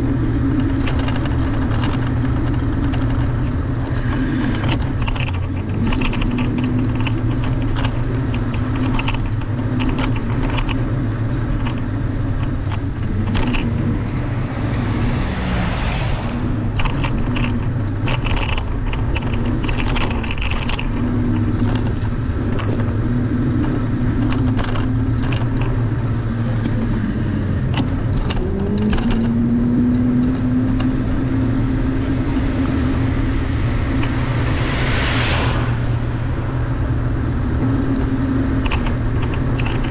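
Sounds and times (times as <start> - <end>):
car engine and road rumble: 0.0 - 39.9
light clicks and rattles: 0.5 - 35.4, 37.6 - 39.9
passing vehicle whoosh: 10.5 - 19.9, 25.8 - 39.9.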